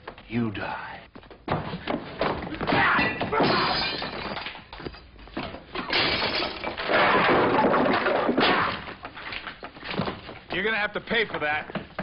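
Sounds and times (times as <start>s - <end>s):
glass and furniture smashing: 2.7s - 9.0s.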